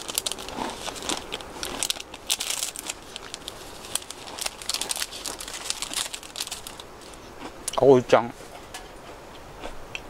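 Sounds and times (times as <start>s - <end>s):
plastic wrapper crinkling: 0.0s - 7.2s.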